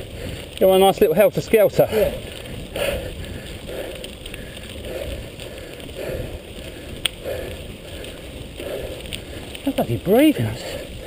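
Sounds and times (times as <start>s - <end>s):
bike tyres rolling on gravel: 0.0s - 11.0s
heavy breathing: 1.8s - 9.6s, 10.4s - 11.0s.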